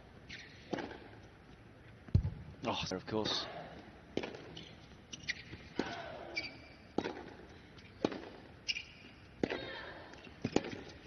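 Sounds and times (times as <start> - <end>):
tennis ball bouncing: 0.3 - 1.2, 4.1 - 4.6, 6.9 - 7.4, 8.0 - 9.8, 10.4 - 11.0
racket striking tennis ball: 0.7 - 1.1, 7.0 - 7.4, 8.0 - 8.5.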